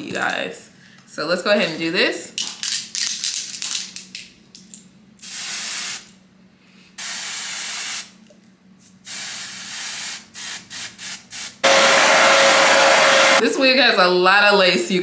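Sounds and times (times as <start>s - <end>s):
aerosol spray hissing: 7.0s - 8.1s, 9.1s - 13.4s.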